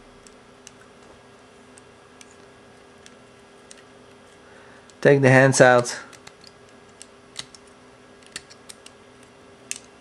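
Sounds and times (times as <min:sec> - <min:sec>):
low steady hum: 0:00.0 - 0:10.0
plastic toy parts clicking: 0:06.1 - 0:10.0.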